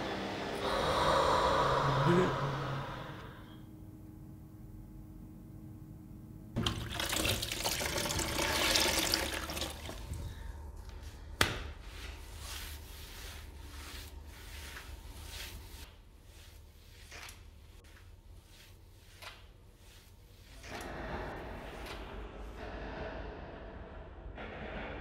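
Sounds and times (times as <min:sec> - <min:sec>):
water splashing and running: 0:06.6 - 0:10.2
wet mop swishing on hard floor: 0:11.8 - 0:20.8.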